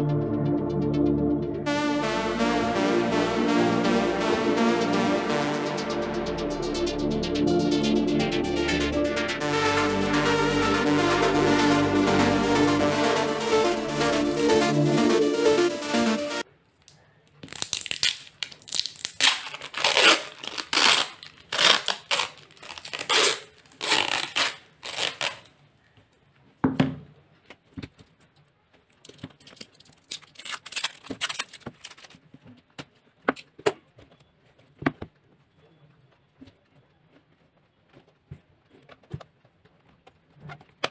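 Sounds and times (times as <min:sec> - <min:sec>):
plastic seal ripping: 0:17.4 - 0:25.5, 0:29.5 - 0:32.2.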